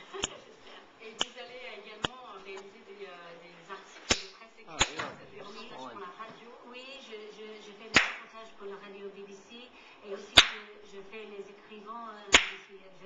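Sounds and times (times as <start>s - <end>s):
faint television speech: 0.0s - 13.0s
sharp cracks: 4.0s - 5.2s, 7.9s - 8.3s, 10.4s - 10.7s, 12.3s - 12.7s.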